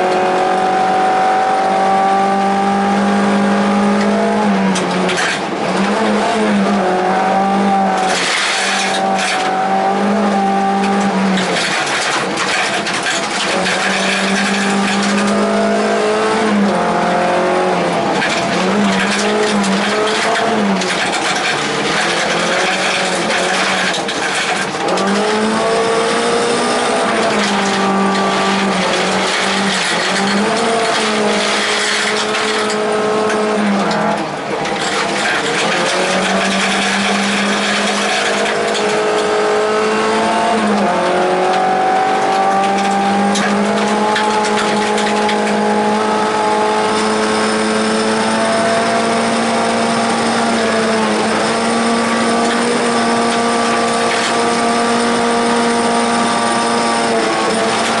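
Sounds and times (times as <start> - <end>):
car engine at high revs: 0.0 - 58.0
tyres and stones on gravel: 11.4 - 15.6, 18.1 - 26.0, 26.9 - 39.3.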